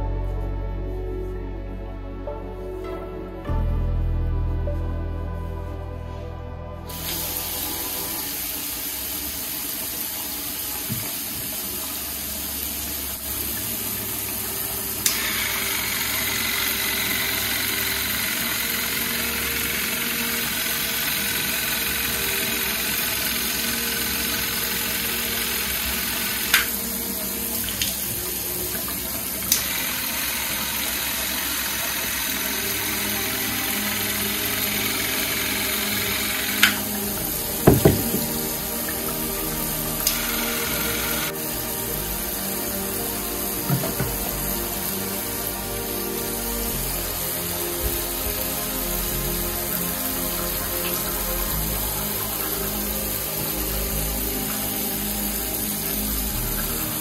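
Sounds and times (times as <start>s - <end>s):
water running from a tap: 6.9s - 57.0s
sharp knocks: 37.7s - 38.4s.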